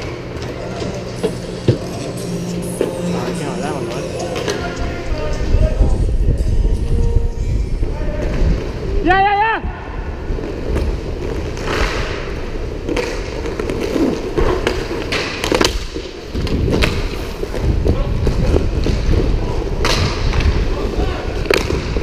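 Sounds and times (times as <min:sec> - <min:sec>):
skate wheels rolling and scraping: 0:10.2 - 0:22.0
hockey sticks and puck clacking: 0:11.5 - 0:19.2, 0:21.4 - 0:22.0.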